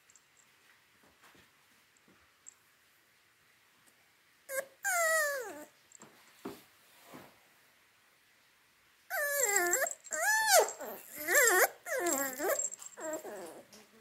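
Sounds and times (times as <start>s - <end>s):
puppy whining and yelping: 4.5s - 5.7s, 9.1s - 14.0s.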